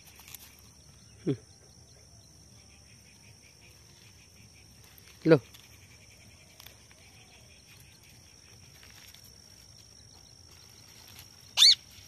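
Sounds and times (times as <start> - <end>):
insects droning: 0.0 - 12.0
parakeet shrill call: 11.6 - 11.9.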